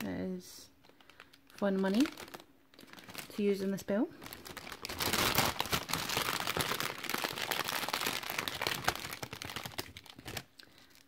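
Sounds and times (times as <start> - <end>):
plastic bag crinkling: 0.8 - 11.0.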